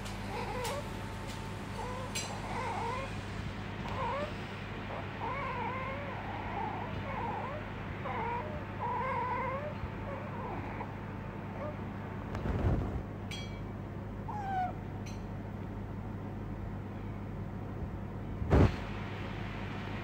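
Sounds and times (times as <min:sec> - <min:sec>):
otter squeaky whining calls: 0:14.3 - 0:14.8.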